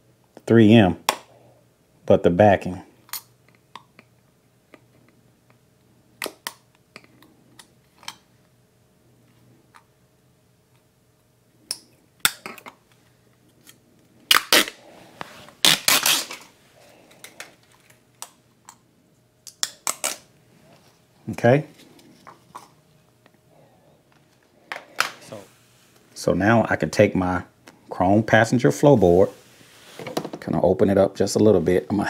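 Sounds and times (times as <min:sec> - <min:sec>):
tape liner ripping: 0:14.3 - 0:14.8, 0:15.5 - 0:16.5, 0:19.5 - 0:20.3.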